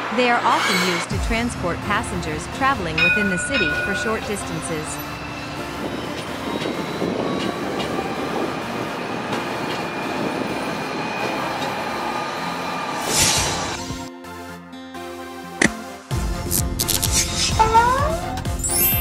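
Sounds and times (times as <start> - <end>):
tram wheels rushing on rail: 0.0 - 14.1.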